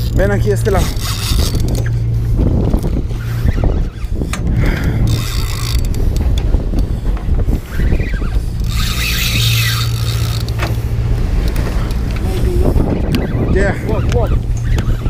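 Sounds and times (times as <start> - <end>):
fishing reel clicks and knocks: 0.0 - 7.2, 8.3 - 12.3
boat engine humming: 0.0 - 15.0.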